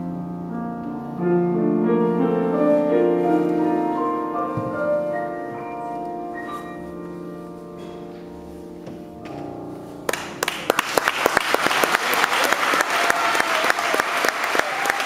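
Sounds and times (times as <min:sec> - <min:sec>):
piano chord ringing: 0:00.0 - 0:10.6
audience applause: 0:10.1 - 0:15.0.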